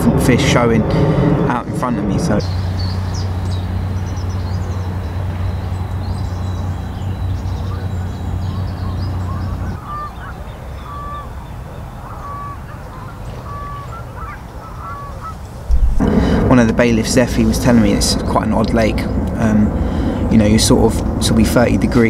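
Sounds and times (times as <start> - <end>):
steady low hum: 0.0 - 9.8, 15.4 - 22.0
small birds chirping: 2.3 - 16.0
geese honking: 7.2 - 15.7.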